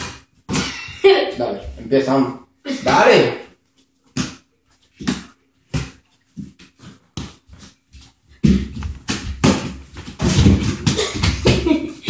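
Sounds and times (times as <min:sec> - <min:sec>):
ball bouncing on hard floor: 0:00.0 - 0:01.8, 0:04.1 - 0:11.8.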